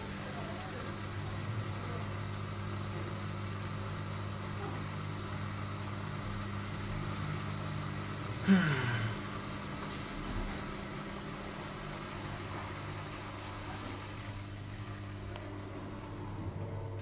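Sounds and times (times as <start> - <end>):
washing machine motor hum: 0.0 - 17.0.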